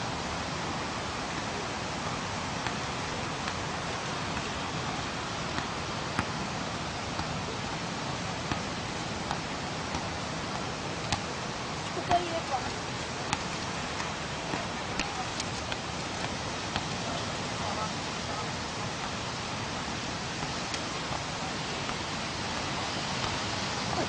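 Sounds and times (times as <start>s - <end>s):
wind: 0.0s - 24.0s
soft thuds of football on foot: 14.5s - 17.1s.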